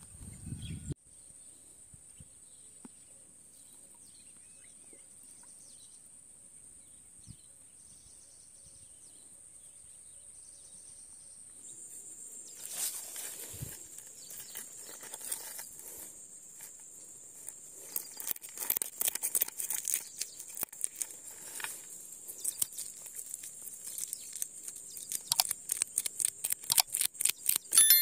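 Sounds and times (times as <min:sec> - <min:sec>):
high insect buzz: 0:11.6 - 0:27.8
chiming sound effect: 0:27.8 - 0:28.0.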